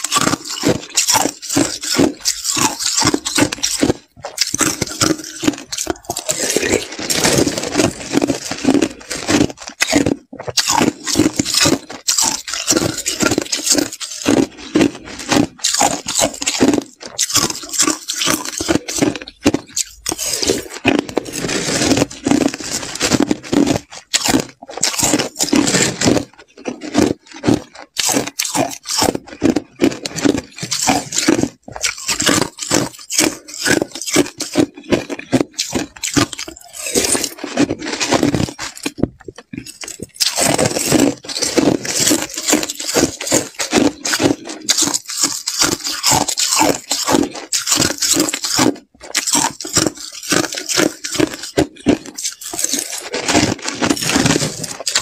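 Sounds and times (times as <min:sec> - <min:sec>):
chewing crushed ice: 0:00.0 - 0:55.0.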